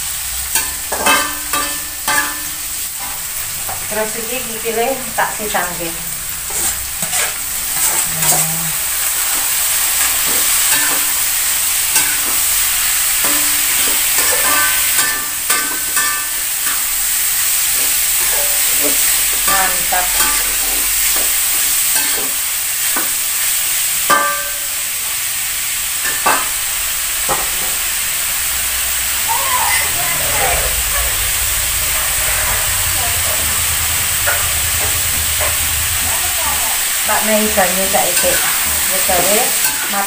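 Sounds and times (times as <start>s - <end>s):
food sizzling in a wok: 0.0s - 40.0s
metal spatula scraping a pan: 0.5s - 3.5s, 6.4s - 23.1s, 29.7s - 40.0s.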